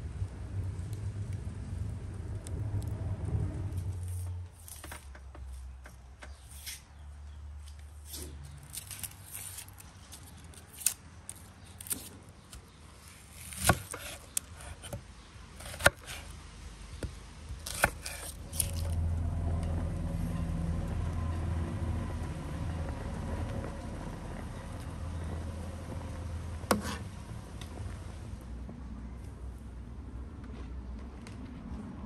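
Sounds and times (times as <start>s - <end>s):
knife cutting on wooden board: 13.4s - 15.0s, 15.6s - 16.3s, 17.6s - 19.0s, 26.7s - 27.1s.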